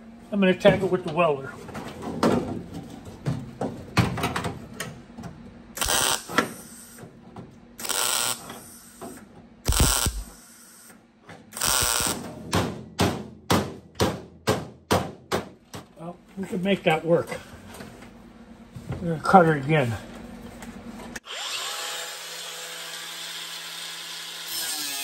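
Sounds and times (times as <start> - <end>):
welder hissing: 5.8 - 7.0, 7.8 - 9.1, 9.7 - 10.9, 11.6 - 12.2.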